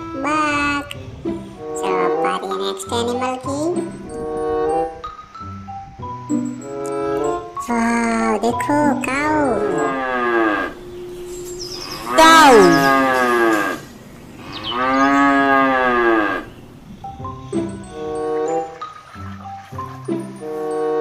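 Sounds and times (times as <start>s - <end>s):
cattle mooing: 9.3s - 16.6s.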